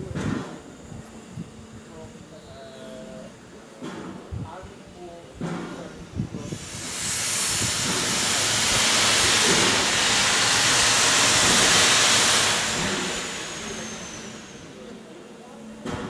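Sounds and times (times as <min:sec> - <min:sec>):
steam locomotive hissing: 0:00.0 - 0:16.0.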